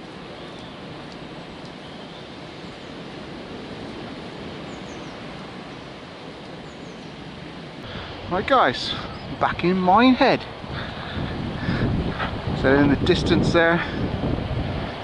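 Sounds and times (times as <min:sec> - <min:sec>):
rushing woodland ambience: 0:00.0 - 0:15.0
faint high bird chirps: 0:01.8 - 0:02.9.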